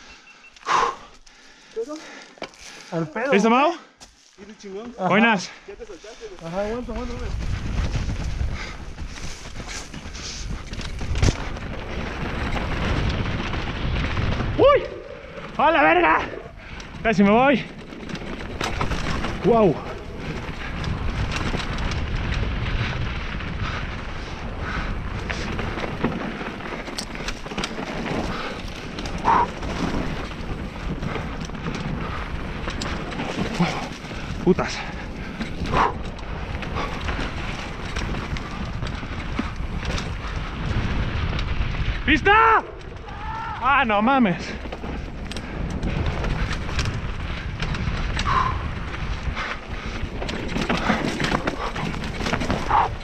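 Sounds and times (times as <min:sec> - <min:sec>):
bike clicks and rattles: 0:00.0 - 0:53.0
bike tyres on dirt: 0:00.0 - 0:53.0
wind on microphone: 0:06.7 - 0:15.5, 0:18.6 - 0:26.8, 0:44.5 - 0:53.0.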